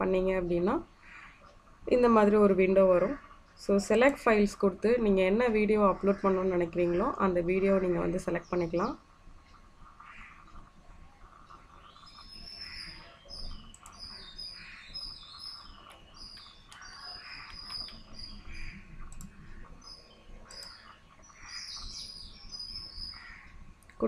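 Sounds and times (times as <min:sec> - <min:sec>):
small birds chirping: 0:05.0 - 0:24.0
faint clicks: 0:09.4 - 0:22.1, 0:23.1 - 0:24.0.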